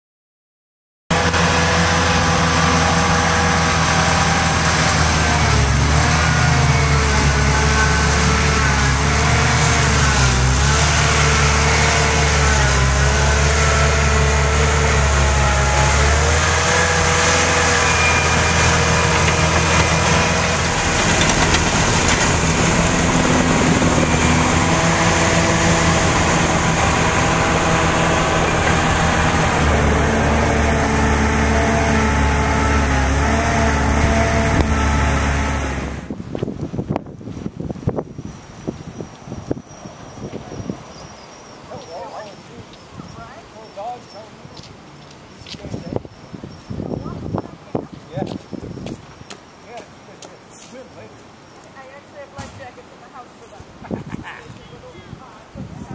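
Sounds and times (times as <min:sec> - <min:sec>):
loader diesel engine running hard: 0:01.1 - 0:36.6.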